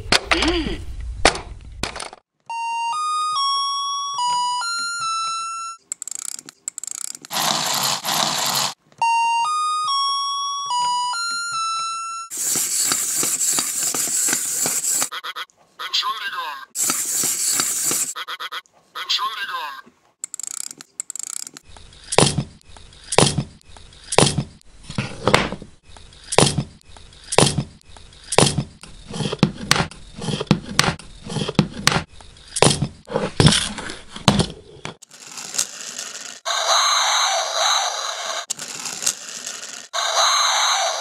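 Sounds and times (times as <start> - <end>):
toys clacking: 5.8 - 8.8, 12.3 - 15.2, 20.2 - 24.4, 34.4 - 40.5.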